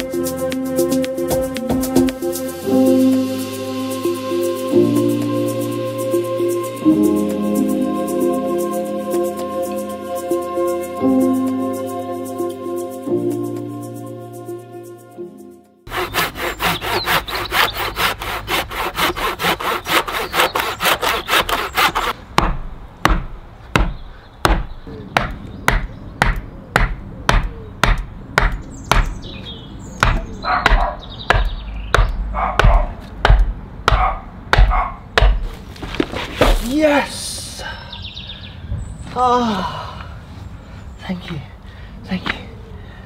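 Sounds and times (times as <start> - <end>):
soft music: 0.0 - 22.2
handsaw cutting wood: 15.9 - 22.2.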